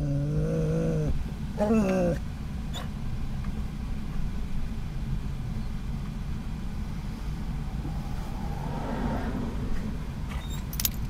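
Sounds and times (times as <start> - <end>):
road noise: 0.0 - 11.0
van engine rumble: 0.0 - 11.0.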